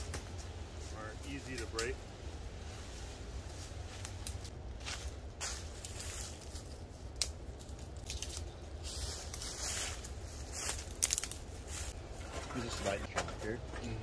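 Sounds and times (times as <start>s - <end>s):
dry leaves crunching: 0.1s - 12.1s
twigs snapping: 3.9s - 4.6s, 5.4s - 11.5s.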